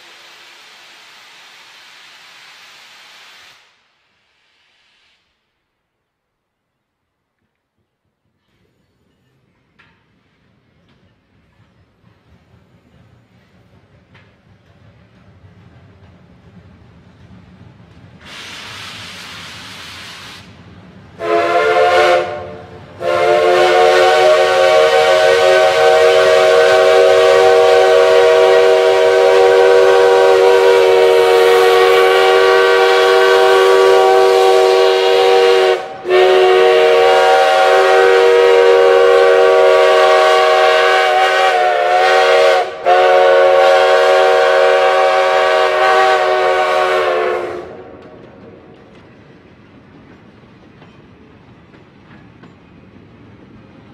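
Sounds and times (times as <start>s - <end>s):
steam hissing: 0.0s - 5.6s, 18.1s - 49.3s
chime steam whistle: 21.2s - 47.8s.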